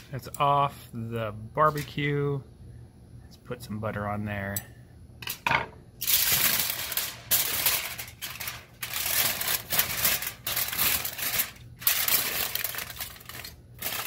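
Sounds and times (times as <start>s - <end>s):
aluminium foil crinkling: 6.0s - 14.0s.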